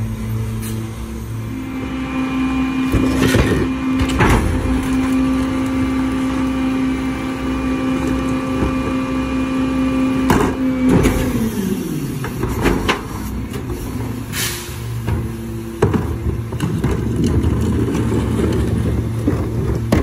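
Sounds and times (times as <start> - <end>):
garbage truck diesel engine: 0.0 - 20.0
clanks and knocks of rear loader: 2.9 - 6.6, 10.2 - 20.0
plastic cart rolling: 3.0 - 7.1, 15.8 - 20.0.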